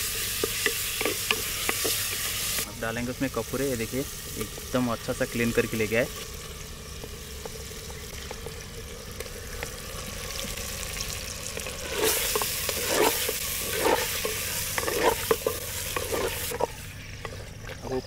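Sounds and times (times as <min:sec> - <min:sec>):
meat sizzling in hot oil: 0:00.0 - 0:17.2
spoon scraping a clay pot: 0:11.8 - 0:17.5.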